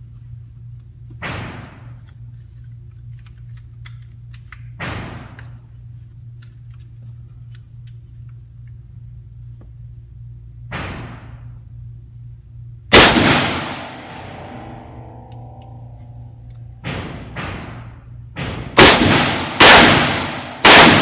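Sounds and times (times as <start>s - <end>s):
ventilation hum: 0.0s - 21.0s
gunshots with reverberant tail: 12.9s - 21.0s.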